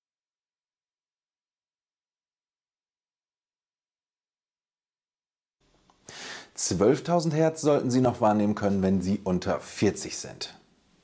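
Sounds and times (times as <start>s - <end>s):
high-pitched sine tone: 0.0s - 9.0s.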